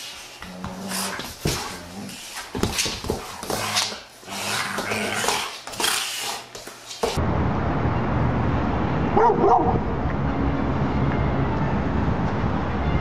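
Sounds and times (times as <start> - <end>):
dogs scuffling on wooden floor: 0.0 - 7.2
outdoor rumble: 7.2 - 13.0
dog barking: 9.2 - 9.8.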